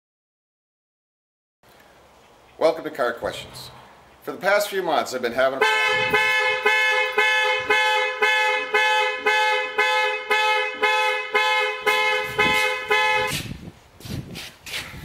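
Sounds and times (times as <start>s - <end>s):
car alarm horn honking: 5.6s - 13.5s.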